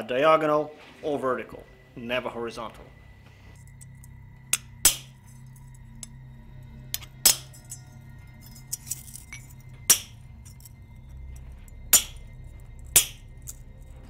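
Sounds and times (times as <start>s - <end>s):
hammer striking chisel on metal: 4.5s - 5.2s, 6.9s - 7.8s, 8.7s - 10.2s, 11.9s - 12.3s, 12.9s - 13.4s.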